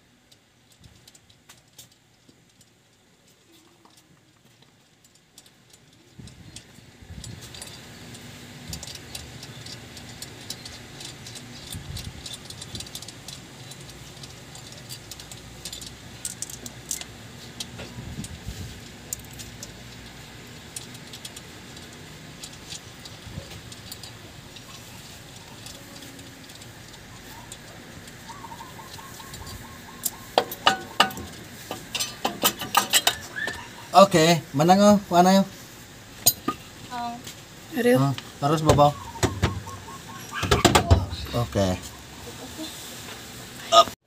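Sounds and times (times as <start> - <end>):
small metallic clicks and clinks: 0.1 - 33.7, 36.2 - 37.4.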